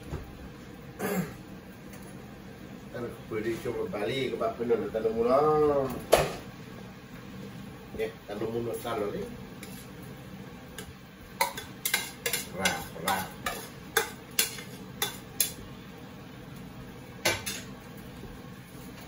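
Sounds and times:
spatula clacking on frying pan: 10.8s - 15.6s.

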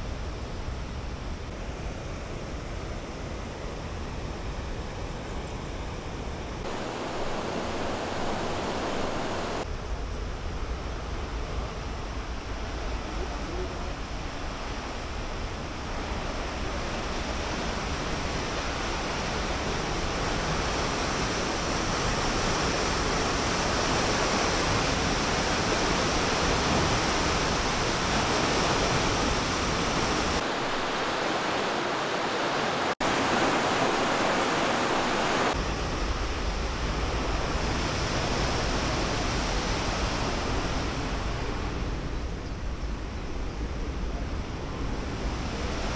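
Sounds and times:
river water rushing: 6.6s - 9.7s, 11.4s - 42.1s.

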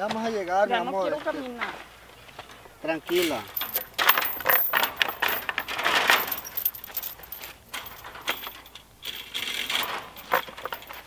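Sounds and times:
handling noise: 2.3s - 11.0s
wooden gate rustling and clinking: 3.0s - 11.0s.

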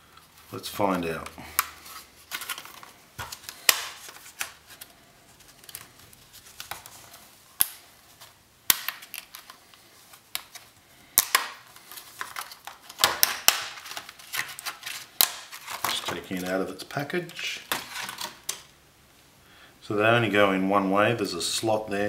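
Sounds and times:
plastic packaging clicking and crackling: 1.2s - 18.7s.

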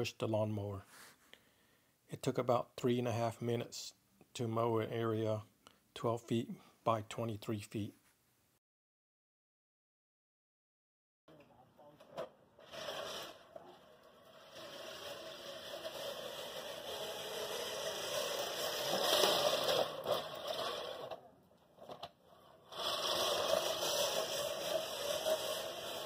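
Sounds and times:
reel mower whirring: 12.1s - 26.0s.

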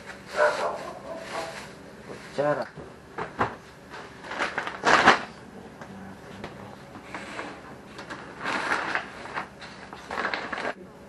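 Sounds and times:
shopping bag rustling: 0.1s - 2.4s, 4.2s - 5.3s, 8.1s - 10.8s
items knocking into bag: 4.2s - 5.3s.

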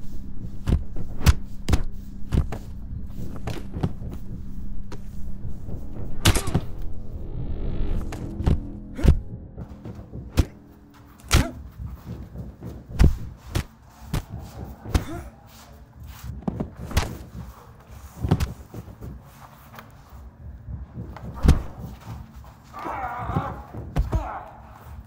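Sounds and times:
punches landing with thuds: 11.3s - 15.3s, 21.1s - 22.0s.

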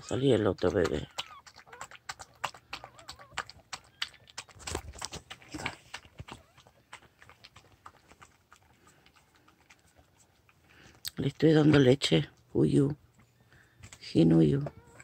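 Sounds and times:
dog lapping milk: 0.0s - 11.9s.

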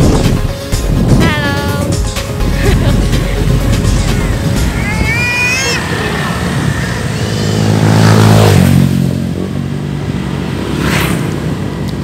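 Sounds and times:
wind noise on microphone: 0.0s - 8.7s
motorcycle engine running: 0.0s - 12.0s.

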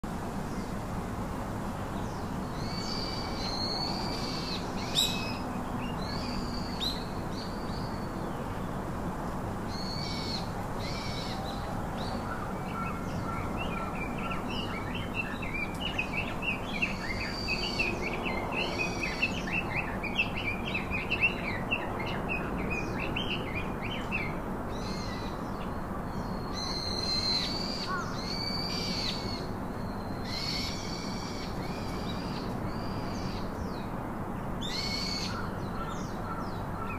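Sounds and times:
low outdoor noise: 0.0s - 36.9s
birds calling: 34.6s - 36.9s.

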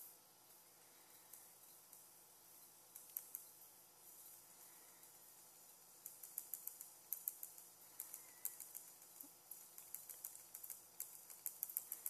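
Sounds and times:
stylus tapping on pen tablet: 6.0s - 12.0s.

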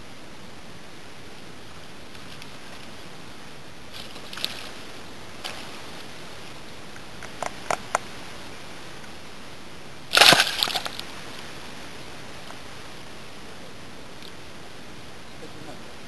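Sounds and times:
sharp clicks: 7.0s - 8.1s
fish splashing in water: 10.1s - 11.0s
loud splash: 10.1s - 11.0s.

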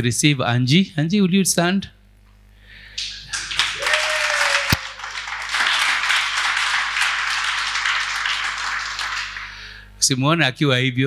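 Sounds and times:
crowd applauding: 3.0s - 9.8s.

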